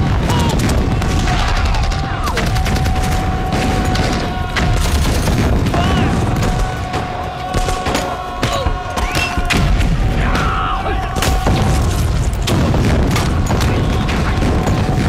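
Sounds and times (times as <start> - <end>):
explosions: 0.0 - 15.0
gunfire: 0.0 - 15.0
people shouting: 0.0 - 15.0.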